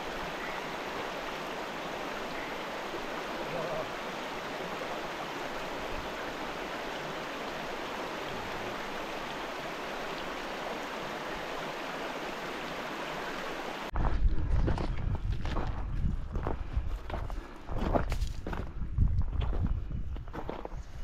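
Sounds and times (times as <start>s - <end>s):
water rushing over rocks: 0.0s - 13.9s.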